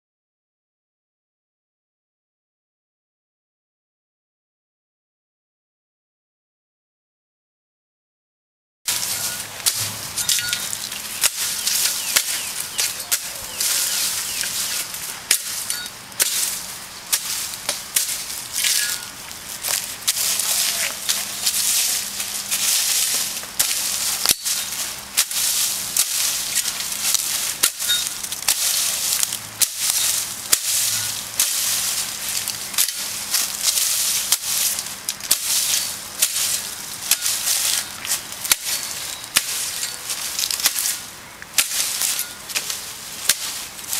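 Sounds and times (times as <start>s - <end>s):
leaves rustling: 8.9s - 43.9s
machete chopping brush: 8.9s - 43.9s
twigs snapping: 8.9s - 43.9s.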